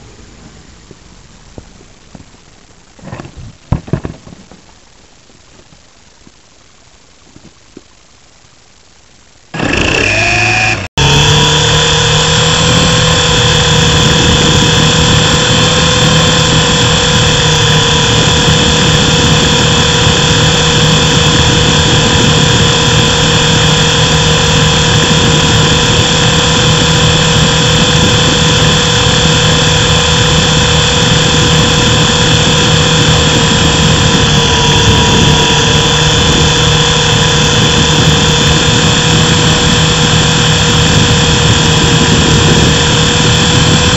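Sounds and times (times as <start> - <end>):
electric motor and rotor whine: 9.5 - 43.9.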